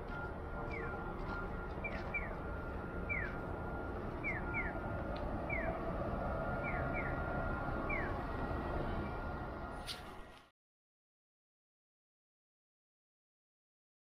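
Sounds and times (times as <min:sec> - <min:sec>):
faint steady tone: 0:00.0 - 0:10.3
street noise: 0:00.0 - 0:10.5
crossing signal bird-like chirps: 0:00.2 - 0:05.9, 0:06.5 - 0:09.4.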